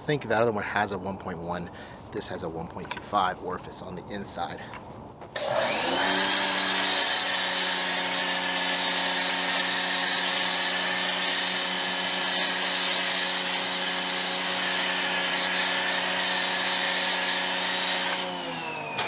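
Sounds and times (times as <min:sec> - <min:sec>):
pressure washer motor hum: 0:05.4 - 0:19.0.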